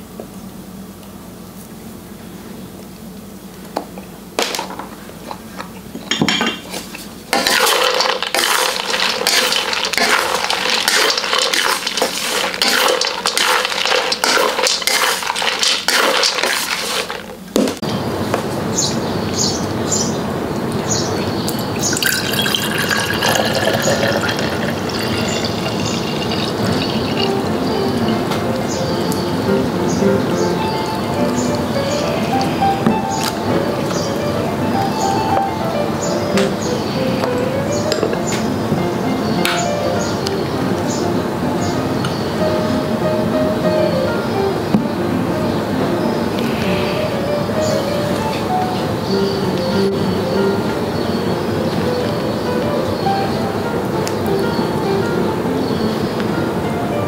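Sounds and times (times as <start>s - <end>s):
utensils clinking against dishes: 4.4s - 17.4s, 20.6s - 34.1s, 37.2s - 38.5s, 39.4s - 40.1s
liquid pouring and stirring: 7.3s - 17.3s, 21.5s - 28.3s
steady hiss: 22.9s - 57.0s.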